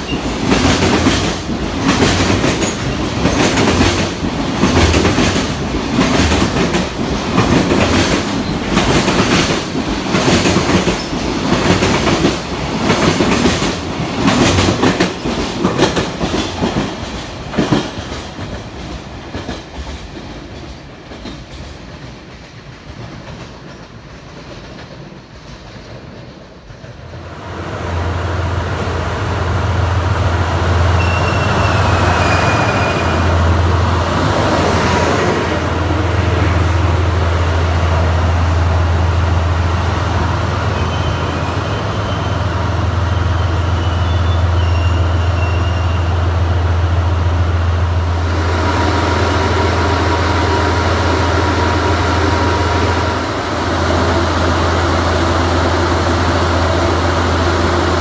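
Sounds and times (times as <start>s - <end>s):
diesel locomotive engine drone: 26.3s - 58.0s.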